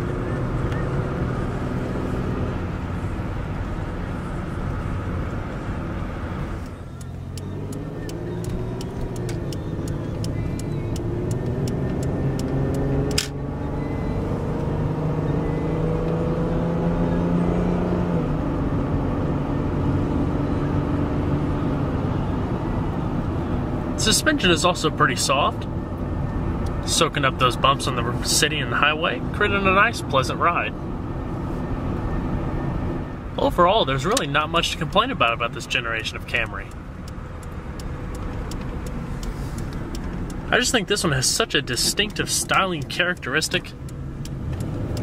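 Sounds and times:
car engine hum: 0.0 - 45.0
road noise: 0.0 - 45.0
turn signal ticking: 0.0 - 45.0
sharp click: 7.0 - 13.4.

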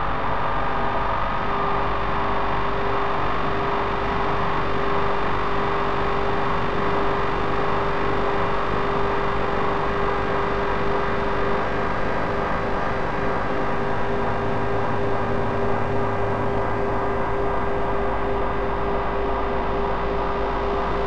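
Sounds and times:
grainy electronic drone: 9.2 - 21.0.

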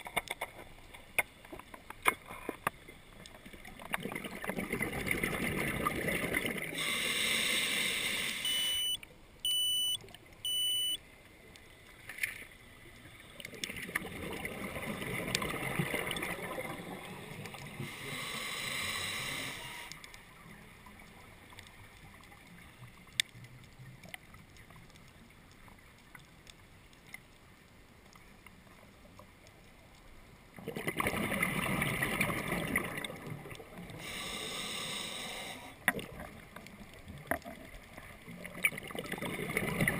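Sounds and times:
exhaled bubbles rushing: 3.6 - 6.8, 13.5 - 17.8, 30.6 - 33.8, 37.4 - 39.9
regulator breathing underwater: 6.7 - 9.0, 17.7 - 19.9, 34.0 - 35.9
short electronic beeps: 8.4 - 11.0, 19.6 - 19.9.

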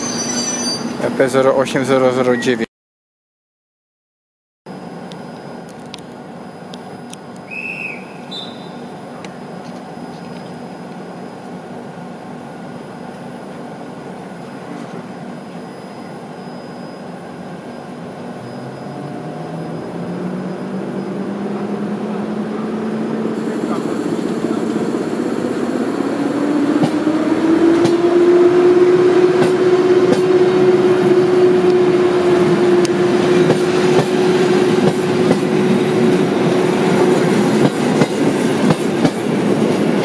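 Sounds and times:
electric train hum: 4.7 - 40.0
short high whistle: 7.4 - 8.9.

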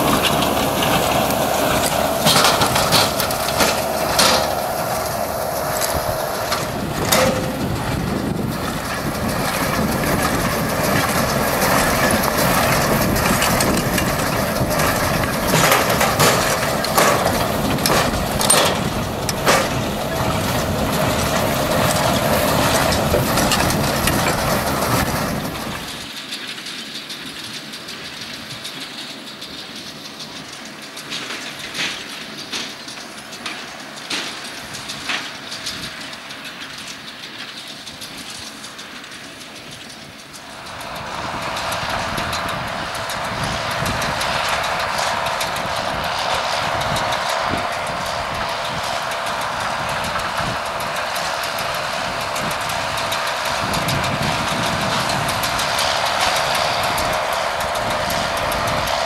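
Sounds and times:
baler knocks and clatter: 0.0 - 26.0
baler machinery running: 0.0 - 59.0
tractor engine running: 0.0 - 59.0.

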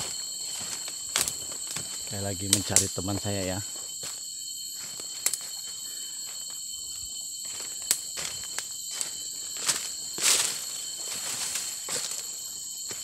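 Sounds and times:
forest insects chorus: 0.0 - 13.0
footsteps on dry leaves: 7.4 - 13.0.

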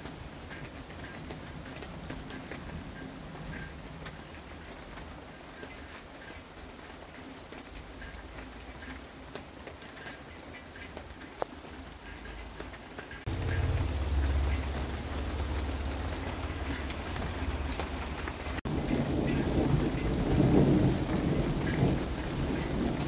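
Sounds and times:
steady rain falling: 0.0 - 23.0
thunder rumble: 13.3 - 23.0.

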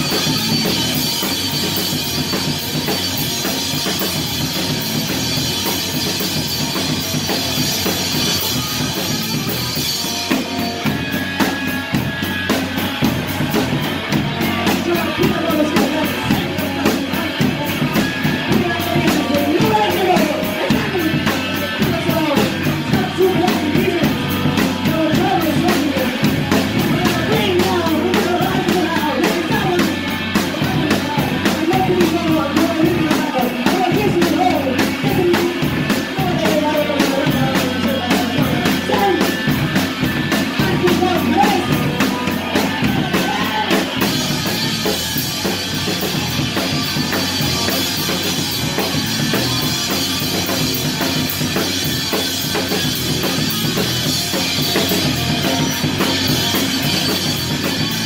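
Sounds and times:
fast driving drum hits: 0.0 - 58.0
rock vocals: 0.0 - 58.0.

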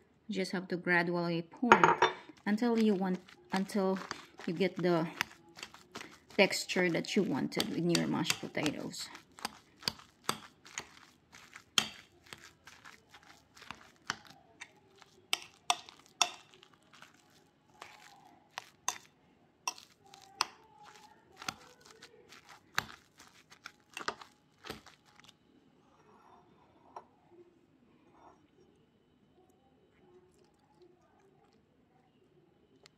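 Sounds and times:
potatoes squelching: 2.2 - 25.4.

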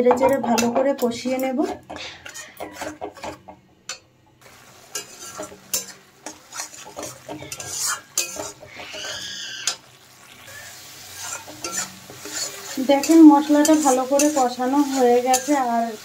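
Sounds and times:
metal spatula scraping pan: 0.1 - 4.0, 4.8 - 9.9, 10.5 - 16.0
paste sizzling in hot oil: 4.4 - 16.0.

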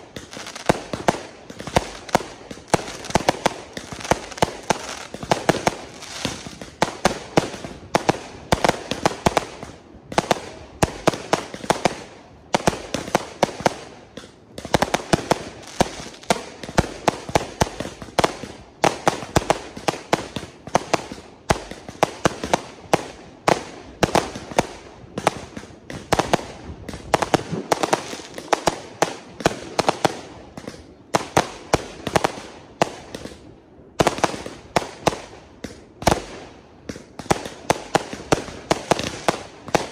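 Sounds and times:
fireworks banging: 0.0 - 39.9
fireworks crackling: 0.0 - 39.9.

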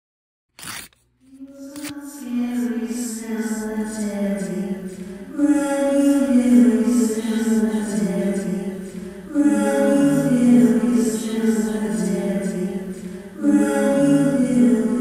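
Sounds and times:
a cappella voices singing: 1.3 - 15.0.

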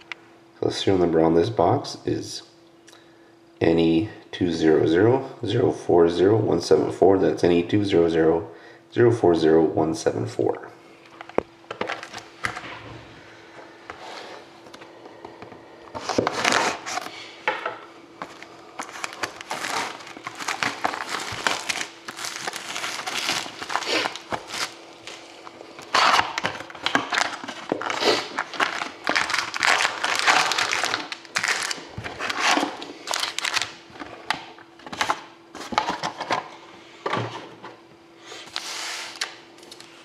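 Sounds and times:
foil packs being handled: 18.2 - 34.0
shrink wrap crinkling: 18.2 - 34.1
knife slitting plastic wrap: 18.9 - 24.8, 27.0 - 33.7.

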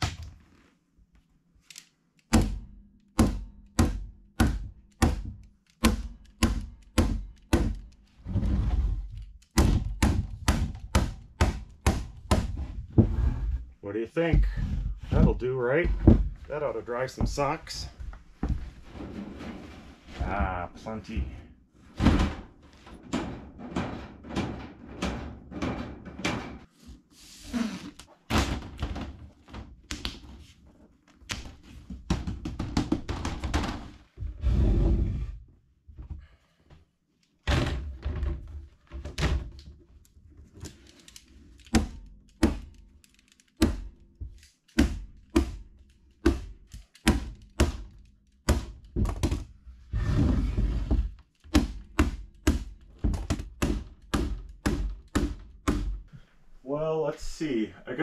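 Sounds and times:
rustling noise: 16.3 - 22.0.

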